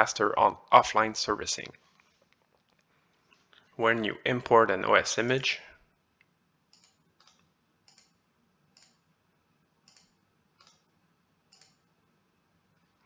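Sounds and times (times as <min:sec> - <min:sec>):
faint computer mouse clicks: 0:06.7 - 0:08.2, 0:09.9 - 0:10.9, 0:11.5 - 0:11.8.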